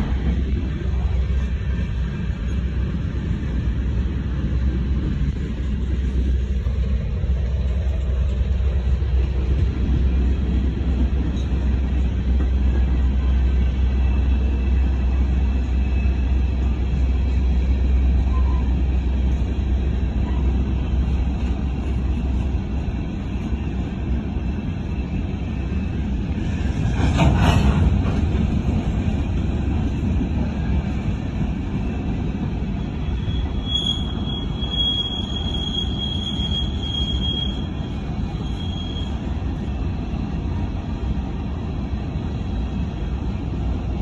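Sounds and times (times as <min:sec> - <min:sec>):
train wheels rumbling on rail: 0:00.0 - 0:44.0
high wheel squeal: 0:32.7 - 0:39.6.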